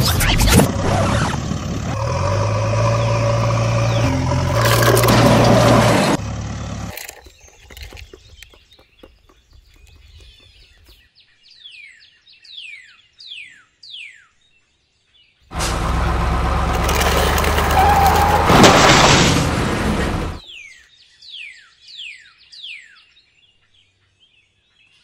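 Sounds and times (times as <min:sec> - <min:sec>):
loud vehicle engine: 0:00.0 - 0:07.2, 0:15.5 - 0:20.4.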